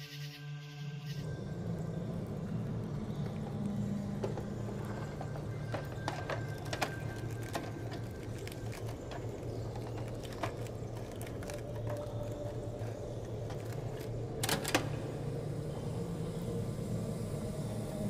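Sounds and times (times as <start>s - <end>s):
steady low hum: 0.9s - 18.0s
tape recorder clicks and knocks: 4.2s - 15.0s.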